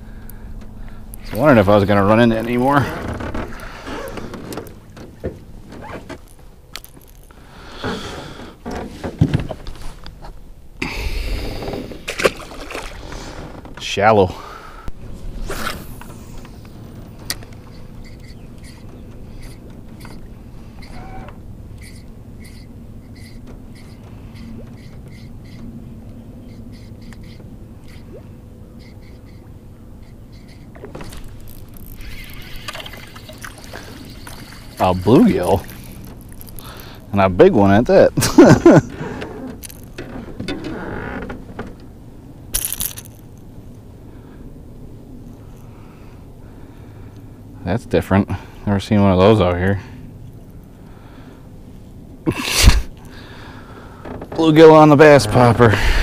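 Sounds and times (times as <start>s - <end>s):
low wind rumble: 0.0s - 28.8s, 43.2s - 56.0s
knocks and scrapes in a boat: 0.6s - 10.4s, 11.4s - 14.1s, 15.0s - 37.8s, 38.9s - 42.0s, 53.6s - 56.0s
rushing noise with low rumble: 14.8s - 18.1s
faint repeated chirp: 17.7s - 20.2s
fish splashing at water surface: 30.9s - 36.9s.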